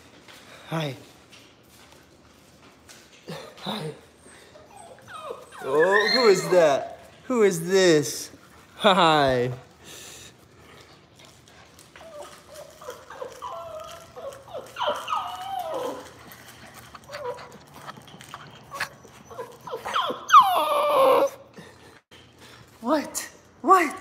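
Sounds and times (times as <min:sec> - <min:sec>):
puppy whining: 0:03.2 - 0:09.2, 0:11.2 - 0:22.1.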